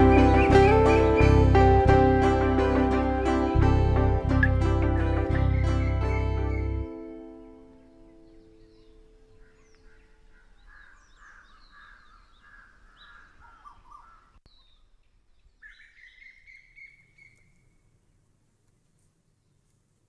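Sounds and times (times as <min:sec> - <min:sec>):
birds chirping: 0:00.0 - 0:18.0
bird whistled call: 0:15.6 - 0:17.8.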